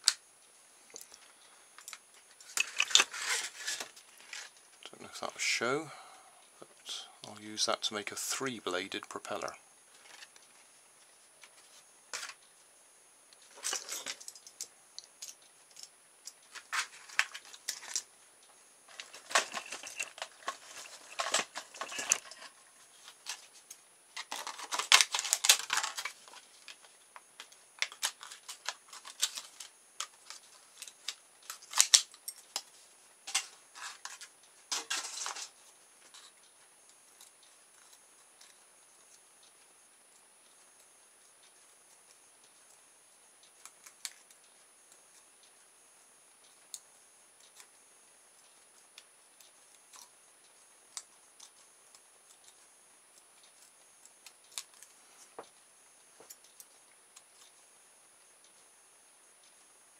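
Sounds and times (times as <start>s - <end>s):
plastic crackling: 1.8s - 4.6s, 18.9s - 32.7s.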